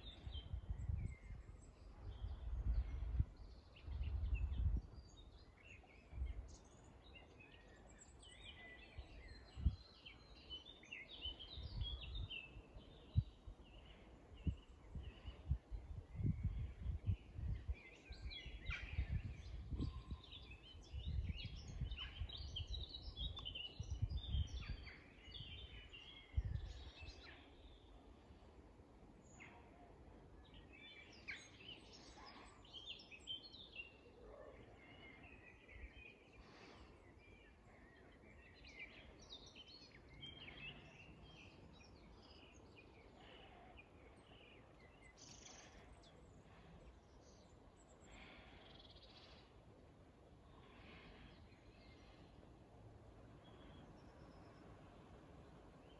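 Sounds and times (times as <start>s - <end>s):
wind rumbling on microphone: 0.0s - 5.4s, 8.9s - 9.9s, 11.6s - 27.4s
songbirds chirping and trilling: 0.0s - 55.9s.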